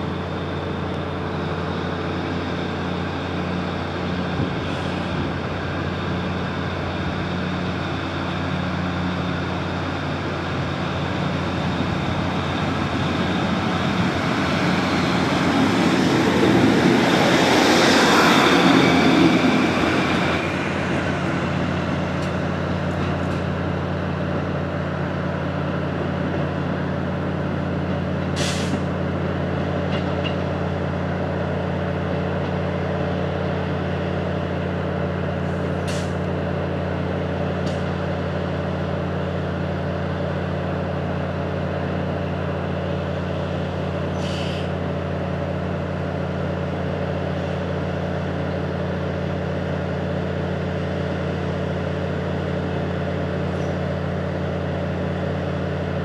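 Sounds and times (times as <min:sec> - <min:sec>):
diesel train idling hum: 0:00.0 - 0:56.0
air release hisses: 0:28.4 - 0:28.8, 0:44.2 - 0:44.7.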